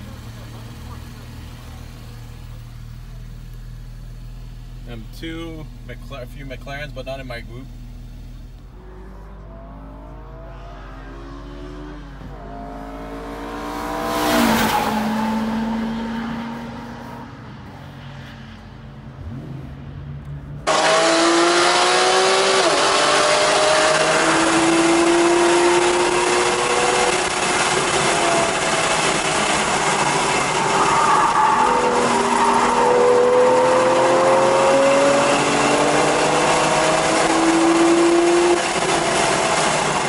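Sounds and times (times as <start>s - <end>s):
car accelerating through gears: 8.6s - 19.9s, 20.6s - 40.0s
car engine revving past: 8.7s - 20.0s, 20.7s - 40.0s.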